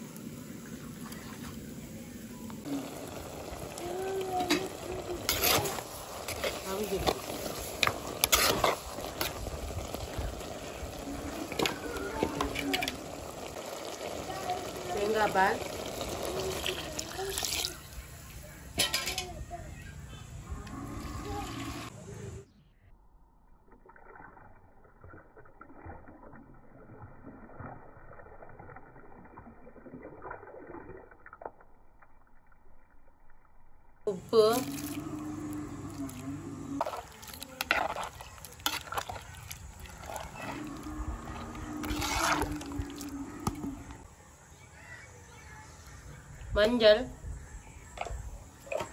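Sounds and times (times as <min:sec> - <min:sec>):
vegetables sizzling in a pot: 0:02.6 - 0:19.3, 0:34.1 - 0:44.0
ladle scraping a pot: 0:04.4 - 0:13.2, 0:34.6 - 0:44.0.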